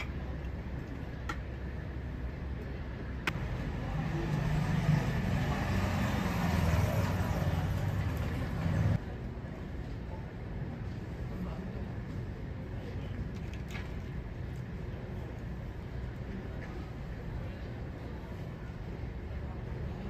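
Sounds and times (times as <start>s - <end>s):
vehicle engine rumbling: 0.0s - 9.0s
road traffic noise: 0.0s - 13.4s.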